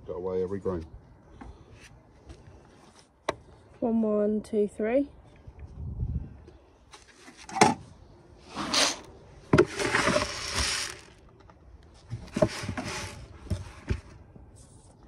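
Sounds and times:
seed pouring out: 8.5 - 11.2, 12.3 - 13.3
seed rattling in plastic bowl: 9.6 - 11.2, 12.3 - 13.3.

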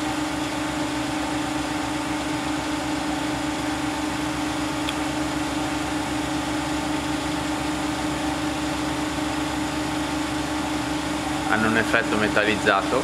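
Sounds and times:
machinery humming: 0.0 - 13.0.

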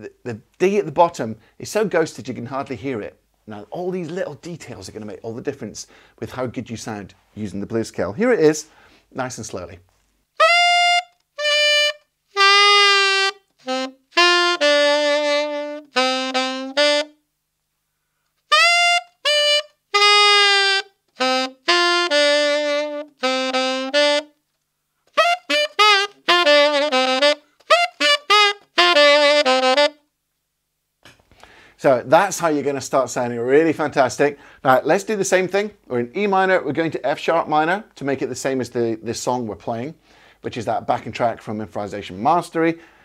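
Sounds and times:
tenor saxophone bluesy lick: 10.3 - 17.2, 18.4 - 24.4, 25.0 - 30.1.

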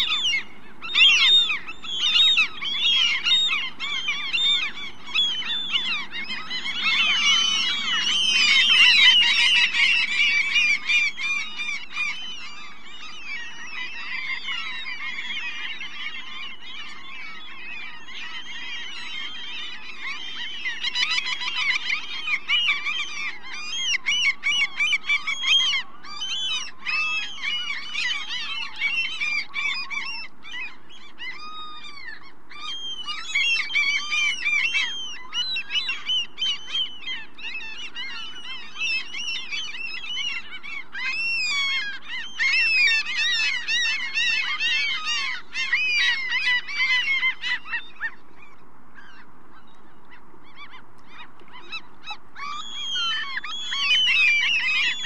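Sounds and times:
gulls calling: 0.0 - 55.0.

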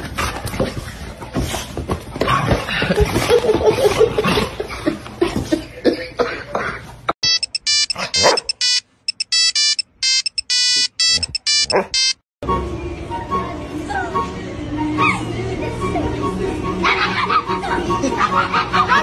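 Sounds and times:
electronic beeping melody: 7.2 - 12.2
dog making playful noises: 11.2 - 12.1.

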